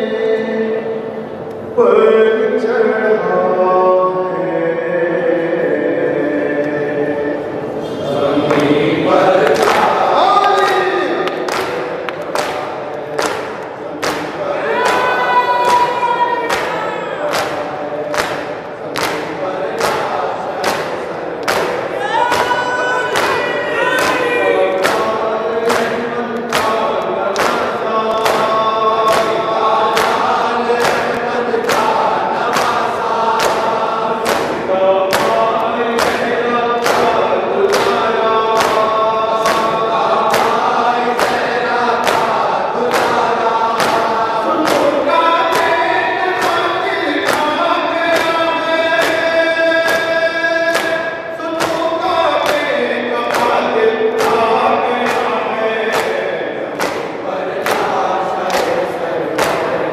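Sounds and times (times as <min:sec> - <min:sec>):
men chanting in unison: 0:00.0 - 0:59.9.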